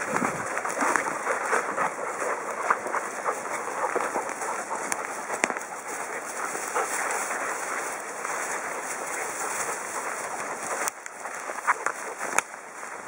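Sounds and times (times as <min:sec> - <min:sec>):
twigs snapping: 0:00.0 - 0:01.8, 0:02.6 - 0:07.2, 0:10.6 - 0:12.6
rustling undergrowth: 0:00.0 - 0:13.0.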